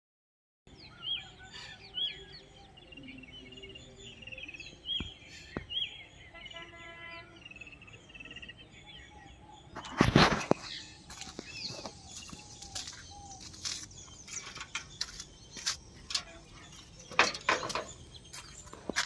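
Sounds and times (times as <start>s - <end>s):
small birds chirping: 0.7s - 19.0s
rustling on microphone: 9.7s - 17.0s.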